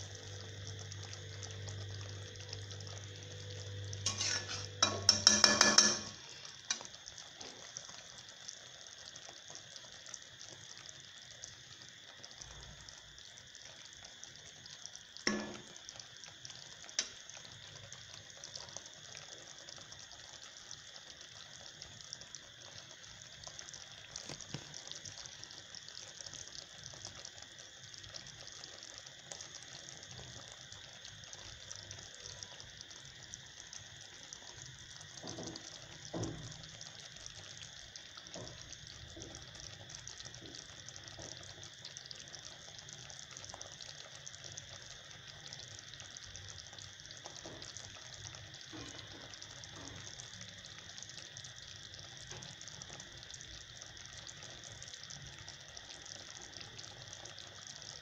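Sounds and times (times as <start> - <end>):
gravy crackling: 3.8 - 8.6
spoon scraping cooking pot: 4.1 - 6.2.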